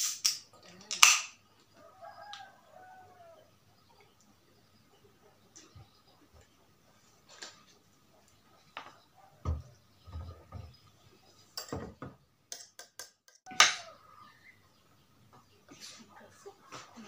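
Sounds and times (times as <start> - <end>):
chopsticks clicking on dishes: 12.5 - 13.8.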